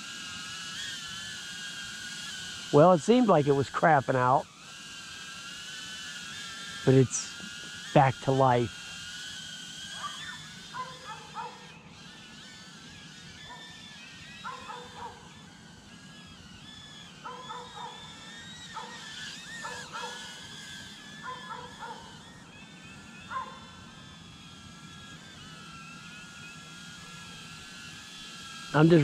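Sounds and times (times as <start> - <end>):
drone motors whining: 0.0 - 29.0
dog barking: 10.8 - 11.6, 14.5 - 15.2, 17.3 - 18.0, 21.2 - 22.0, 23.3 - 23.6.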